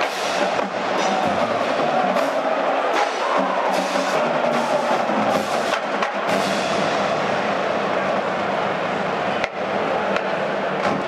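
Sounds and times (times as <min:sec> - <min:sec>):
drum and percussion strikes: 0:00.0 - 0:07.7.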